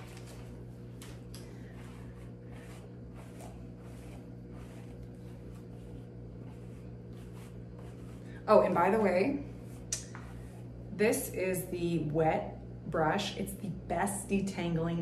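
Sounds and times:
hairbrush swishing through hair: 0.0s - 11.5s
steady low hum: 0.0s - 15.0s.

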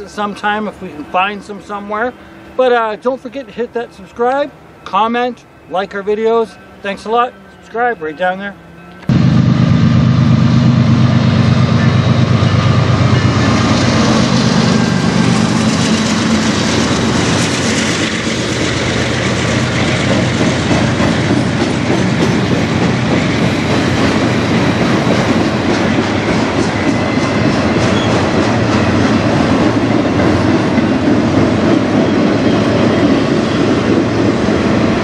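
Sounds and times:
locomotive engines droning: 0.0s - 35.0s
train cars rumbling: 8.9s - 35.0s
train wheels clicking over rail joints: 14.0s - 33.2s.

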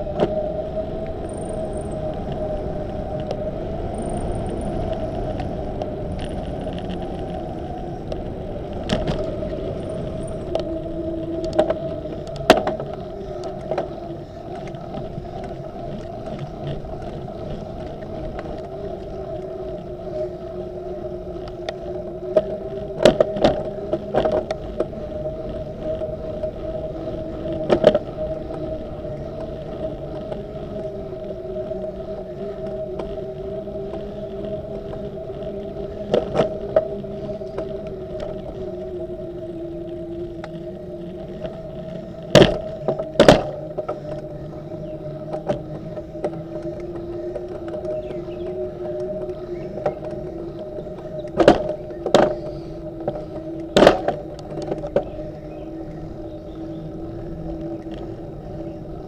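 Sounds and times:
bicycle tyre noise: 0.0s - 59.0s
bicycle knocks and rattles: 4.0s - 19.1s, 21.6s - 25.0s, 27.5s - 30.8s, 42.2s - 58.7s.

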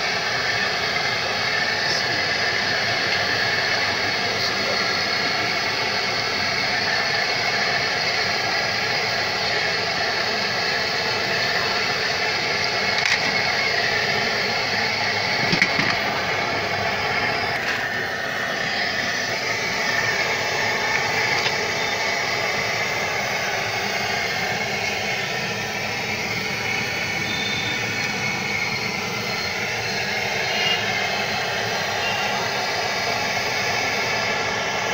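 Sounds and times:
hot oil sizzling on a griddle: 0.0s - 34.9s.

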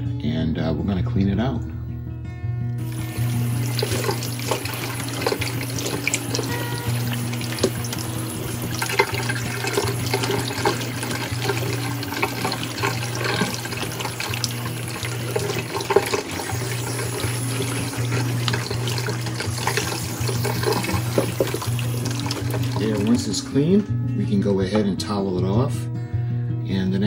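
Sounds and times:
background music with bass note: 0.0s - 27.0s
tap water splashing in sink: 2.8s - 23.3s.

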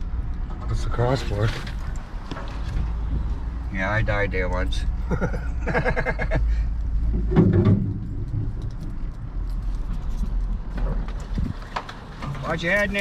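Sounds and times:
low engine and road rumble: 0.0s - 13.0s
truck jolt: 7.0s - 9.1s.

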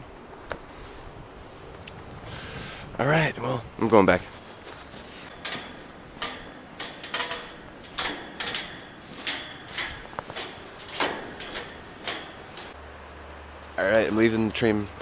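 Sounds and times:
footsteps crunching through snow: 4.2s - 5.4s.

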